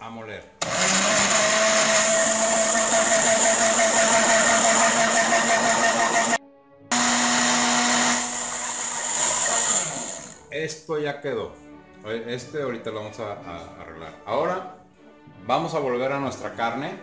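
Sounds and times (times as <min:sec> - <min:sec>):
blender running: 0:00.6 - 0:10.4.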